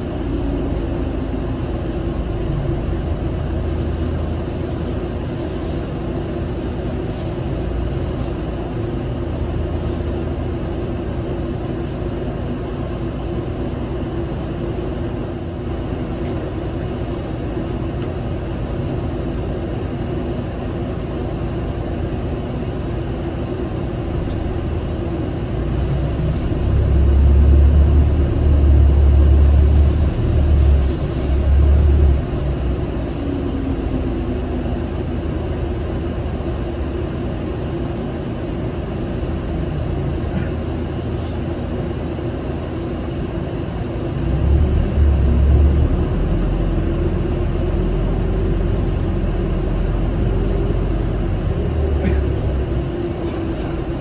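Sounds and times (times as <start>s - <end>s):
diesel engine hum: 0.0s - 54.0s
road and tyre rumble: 0.0s - 54.0s
deep low rumble: 23.7s - 38.0s, 44.0s - 54.0s.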